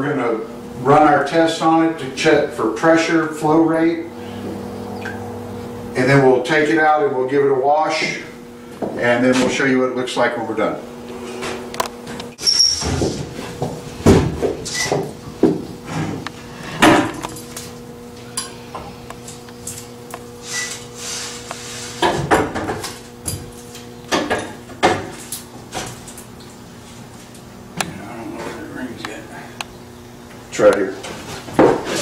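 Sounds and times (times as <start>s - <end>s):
steady hum: 0.0s - 32.0s.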